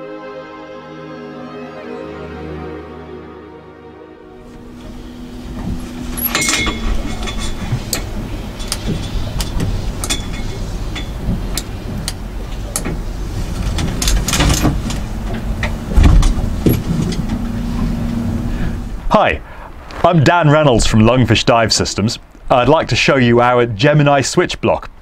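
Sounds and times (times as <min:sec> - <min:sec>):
boat engine running: 0:04.4 - 0:19.1
clicks and knocks of buckles: 0:05.5 - 0:13.0
heavy thump: 0:13.7 - 0:18.3.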